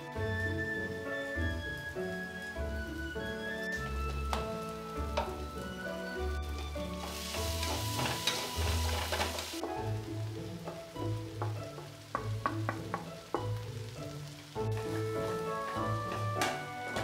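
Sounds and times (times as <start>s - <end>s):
background music with sustained notes: 0.0s - 17.0s
food sizzling in hot oil: 0.0s - 17.0s.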